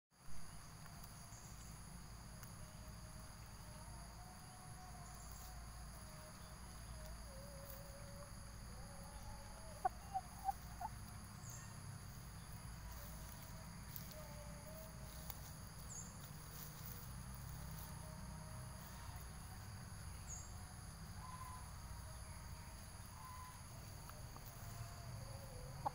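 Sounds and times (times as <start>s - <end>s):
insect chorus: 0.2s - 25.9s
chicken clucking: 7.6s - 18.2s, 24.4s - 25.9s.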